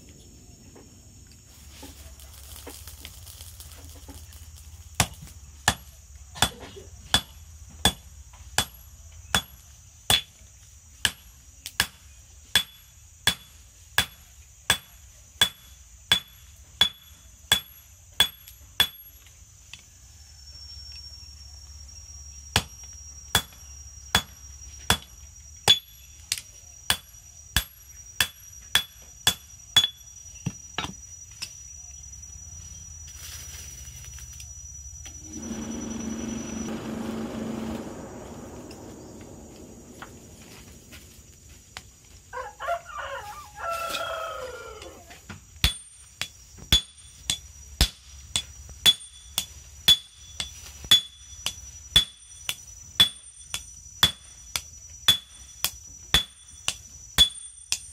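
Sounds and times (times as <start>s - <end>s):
hammer striking steel on anvil: 12.6s - 19.1s, 45.6s - 57.9s.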